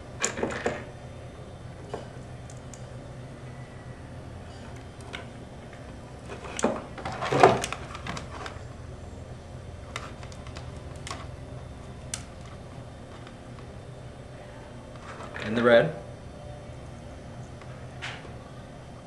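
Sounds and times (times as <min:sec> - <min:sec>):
low room hum: 0:00.0 - 0:19.0
wires clicking and rustling: 0:01.9 - 0:03.0, 0:04.5 - 0:08.8, 0:09.8 - 0:13.7.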